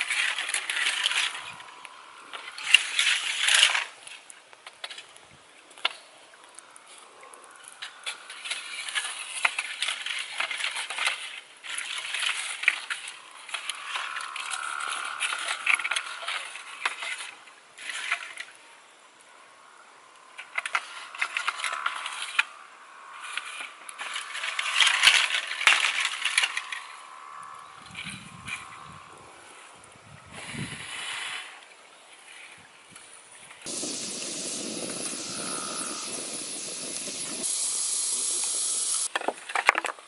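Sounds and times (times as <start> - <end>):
campfire crackling and popping: 0.0 - 17.0, 33.6 - 39.2.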